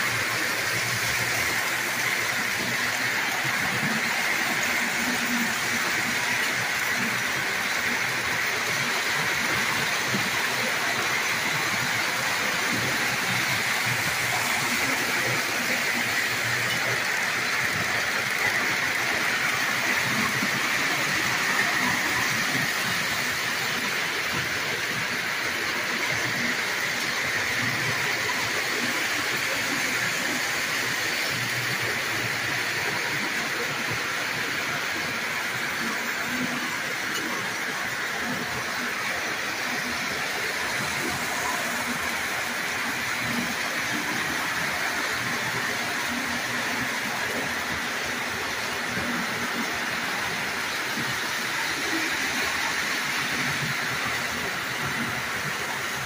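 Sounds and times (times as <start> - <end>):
toy trains whirring on track: 0.0 - 56.0.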